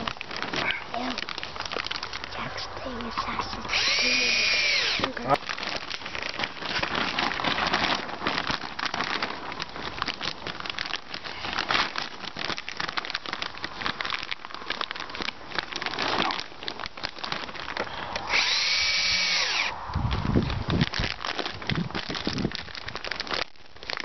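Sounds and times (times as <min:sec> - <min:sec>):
plastic sheeting crackling: 0:00.0 - 0:24.0
drill driving screw: 0:03.7 - 0:05.1, 0:18.3 - 0:19.7
cordless drill spinning: 0:03.7 - 0:05.3, 0:18.2 - 0:19.8.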